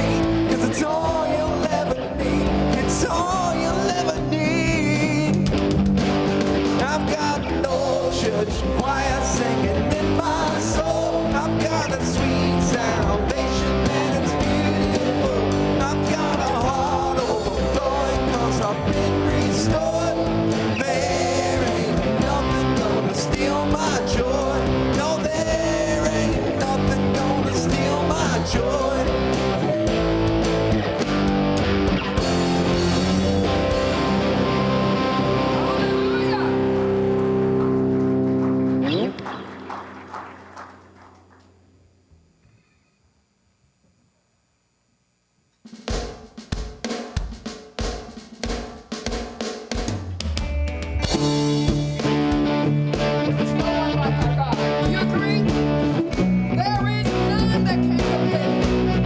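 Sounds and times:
person singing: 0.0 - 5.5, 6.7 - 30.6, 53.3 - 55.5
live band playing gospel rock: 0.0 - 40.7, 49.8 - 59.0
drums: 0.0 - 41.6, 45.5 - 59.0
guitar: 0.0 - 43.1, 49.9 - 59.0.

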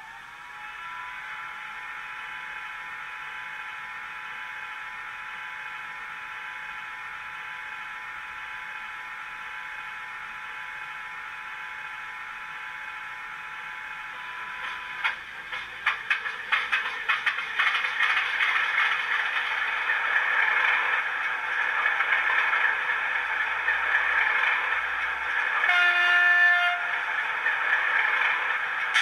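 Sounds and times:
sharp clicks and rattles: 14.6 - 21.0.

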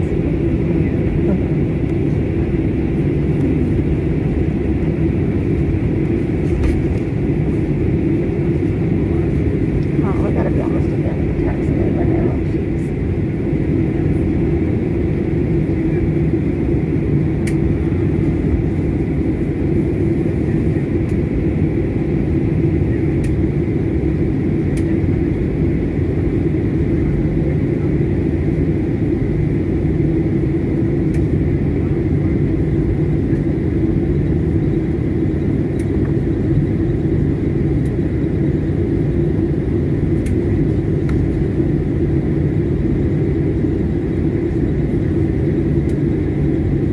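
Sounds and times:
jet engine cabin rumble: 0.0 - 46.9.

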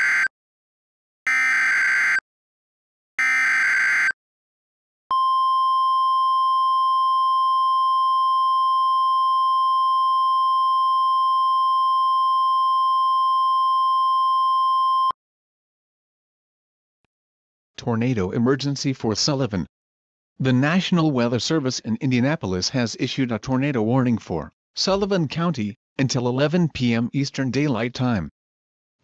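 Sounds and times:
steady alarm tone: 0.0 - 0.3, 1.3 - 2.2, 3.2 - 4.2.

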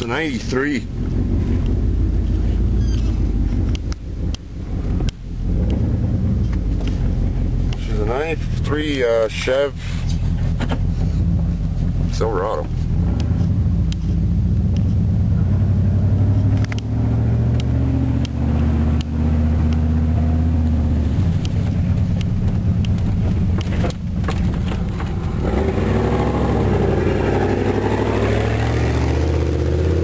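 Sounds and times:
truck engine running: 0.0 - 30.0
cab knocks and rattles: 21.6 - 25.4.

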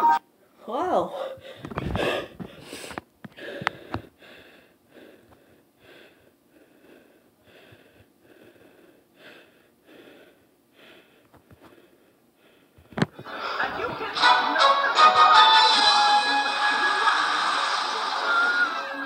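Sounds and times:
boy panting: 0.9 - 13.8.

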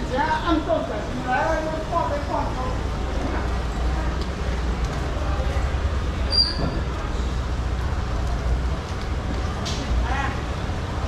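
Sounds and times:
high squeak: 6.3 - 6.8.

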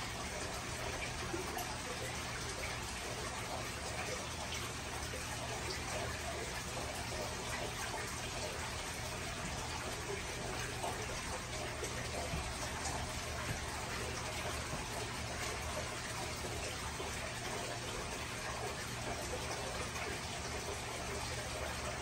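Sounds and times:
aquarium filter running water: 0.0 - 22.0
low steady hum: 0.0 - 22.0.

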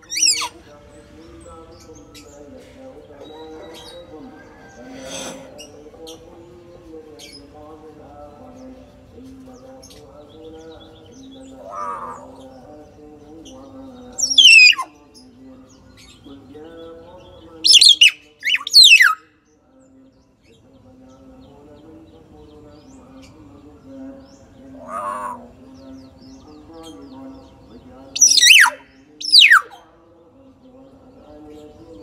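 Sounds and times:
myna bird piercing calls: 0.0 - 0.6, 11.6 - 12.4, 14.2 - 14.9, 17.7 - 19.2, 24.8 - 25.4, 28.2 - 29.8.

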